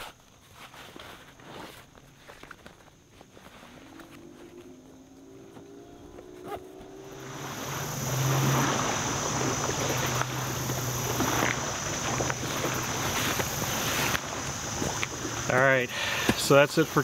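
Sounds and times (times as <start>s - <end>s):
low hum: 3.3s - 16.0s
wind on microphone: 4.0s - 15.6s.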